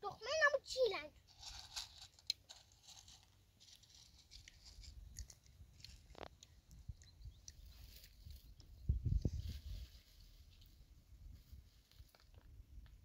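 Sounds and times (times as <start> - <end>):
faint clicks and rustles: 1.3 - 10.8.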